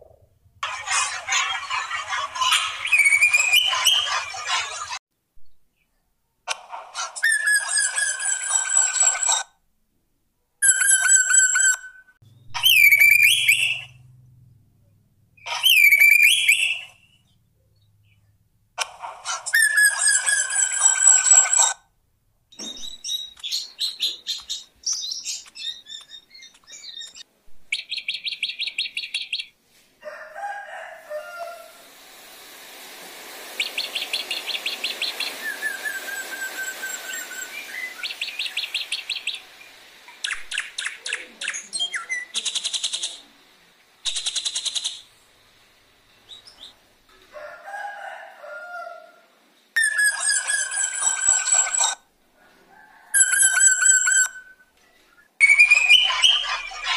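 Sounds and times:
bird singing varied song: 1.6 - 4.8, 10.6 - 14.1, 15.4 - 18.4, 22.5 - 29.6, 33.6 - 39.5, 53.2 - 56.9.

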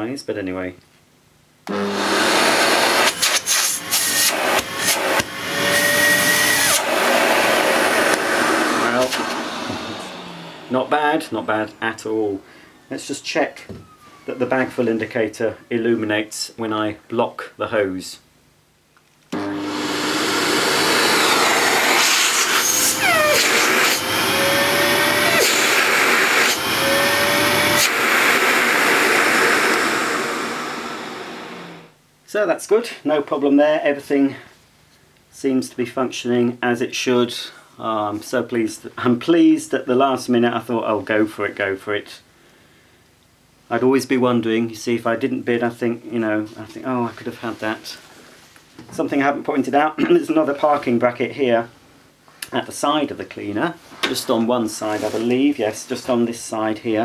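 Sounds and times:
faint vacuum whine: 1.6 - 18.0, 19.3 - 35.6
vacuum cleaner air rush: 1.7 - 11.8, 19.4 - 31.9
vacuum cleaner switching on: 1.7 - 11.8, 19.3 - 31.9.

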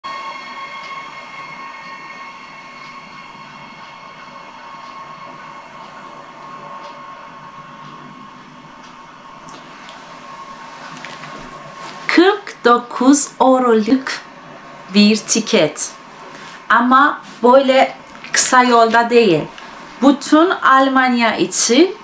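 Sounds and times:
held high tone: 0.0 - 8.5
train rolling: 0.0 - 22.0.

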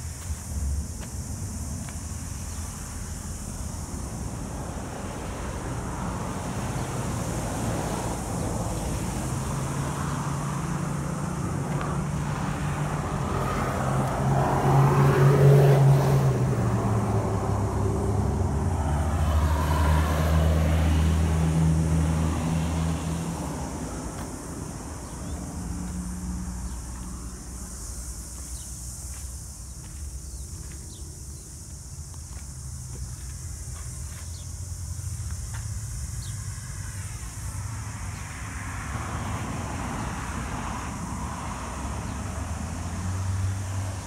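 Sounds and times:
vehicle passing by: 2.6 - 30.9, 32.6 - 44.0
second vehicle passing: 2.7 - 29.3.

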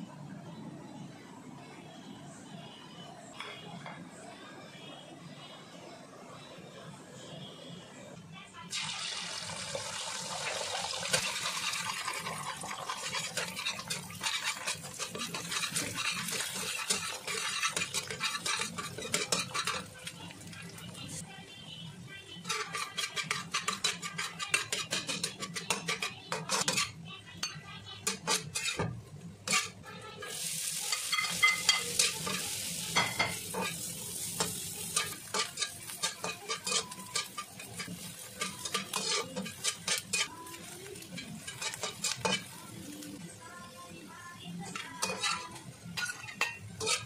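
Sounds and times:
sausage sizzling in hot oil: 8.7 - 21.2, 29.5 - 43.4
spatula scraping against wok: 11.1 - 21.2, 22.3 - 27.0, 28.0 - 43.1, 44.7 - 47.0.

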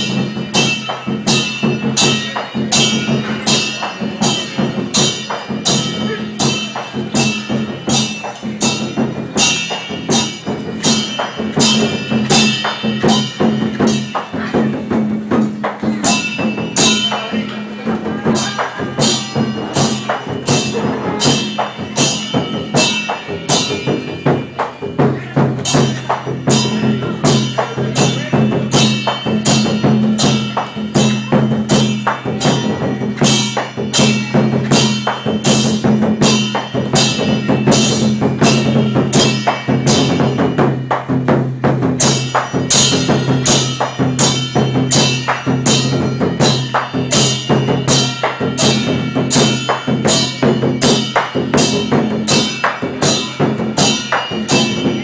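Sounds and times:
cymbals: 0.0 - 55.0
drum: 0.0 - 55.0
gong: 0.0 - 55.0.

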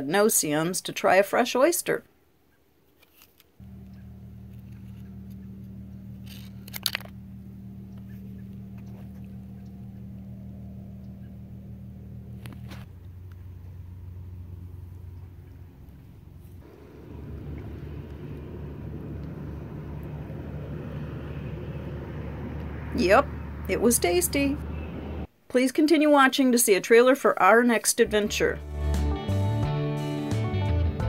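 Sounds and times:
low engine hum: 3.6 - 25.3.

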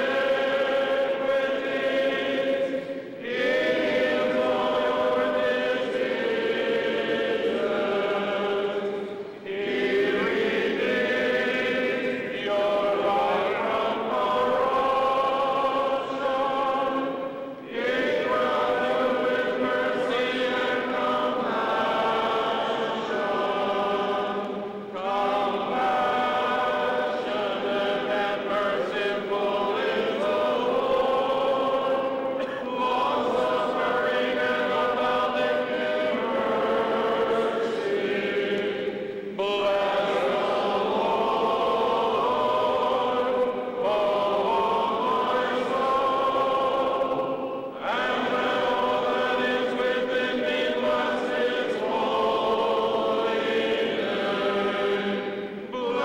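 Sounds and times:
choir singing chant: 0.0 - 56.0.

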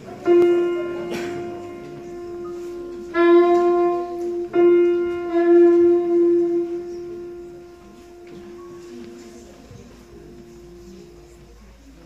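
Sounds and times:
held piano note: 0.0 - 12.0
soprano saxophone long note: 0.2 - 9.1.

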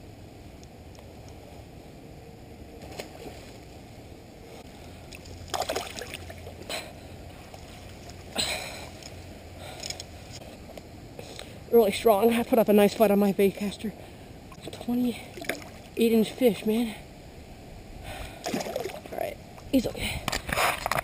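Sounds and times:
low steady background noise: 0.0 - 21.0
fish splashing at water surface: 5.1 - 6.5.

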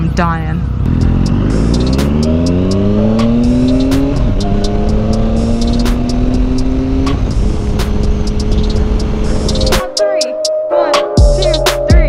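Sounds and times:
motorcycle engine accelerating: 0.0 - 9.9.

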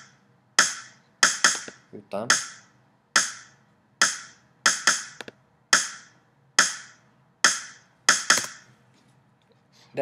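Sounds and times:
snare drum hits: 0.6 - 5.2, 5.8 - 8.6.

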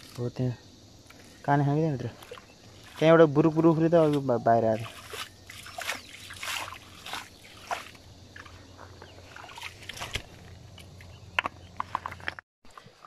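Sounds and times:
hands splashing in stream water: 4.8 - 10.4.

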